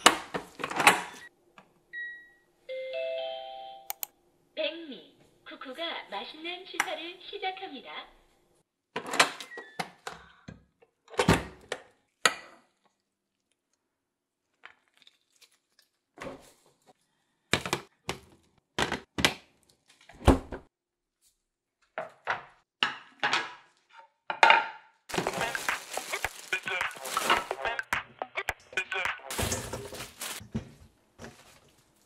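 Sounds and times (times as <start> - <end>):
kitchen knocks and clatters: 21.9 - 26.2, 29.3 - 31.7
food containers shuffled in freezer: 25.1 - 27.6, 29.3 - 32.0.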